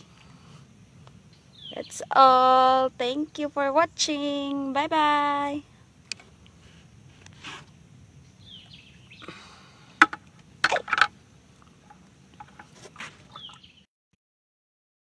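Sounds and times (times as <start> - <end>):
birds chirping: 1.1 - 4.8, 7.2 - 10.1, 11.8 - 13.9
sharp clicks or knocks: 10.0 - 11.1.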